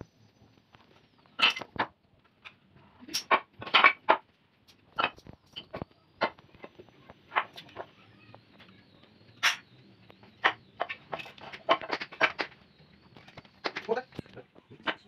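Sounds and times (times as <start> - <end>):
wooden boards knocking on tiles: 3.2 - 4.3, 5.0 - 7.9, 10.3 - 12.6, 13.3 - 15.0.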